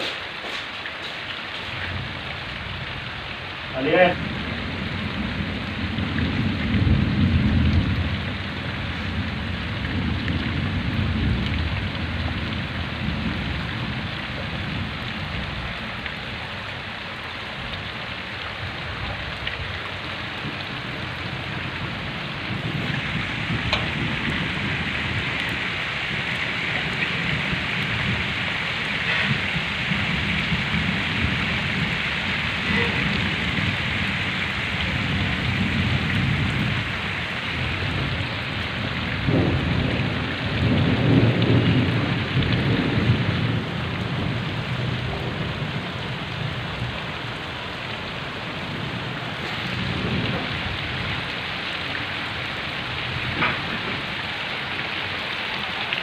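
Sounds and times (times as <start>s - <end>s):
heavy rain pouring: 0.0s - 56.0s
low rumble: 17.7s - 37.0s.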